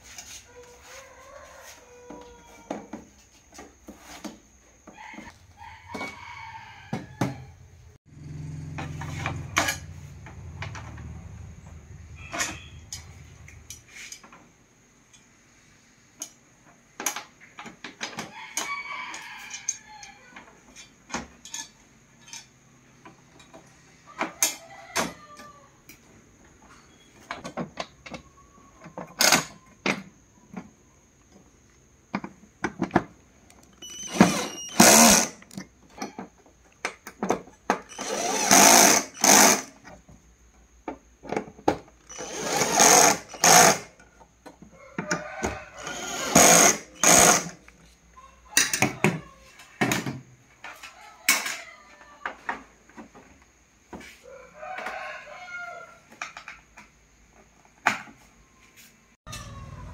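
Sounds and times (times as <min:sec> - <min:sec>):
rooster crowing: 0:00.3 - 0:03.0, 0:04.9 - 0:09.5, 0:18.2 - 0:20.5, 0:23.8 - 0:25.8, 0:44.6 - 0:49.7, 0:50.8 - 0:52.6, 0:54.0 - 0:56.1, 0:58.6 - 0:59.9.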